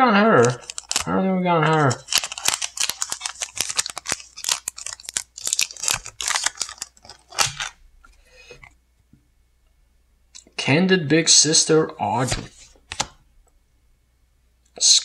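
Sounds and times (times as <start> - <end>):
foil wrapper tearing and crinkling: 0.4 - 7.8.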